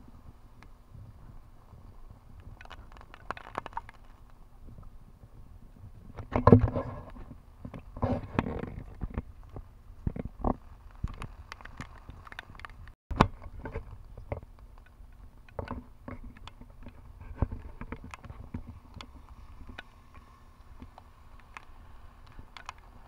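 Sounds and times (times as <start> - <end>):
wind rumbling on microphone: 0.0 - 23.0
raindrops tapping on camera: 7.7 - 23.0.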